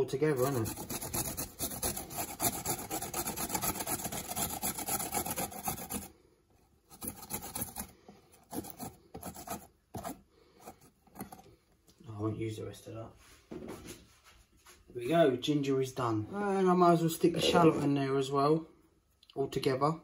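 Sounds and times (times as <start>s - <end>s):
ginger grated on metal grater: 0.0s - 6.1s, 6.9s - 10.1s.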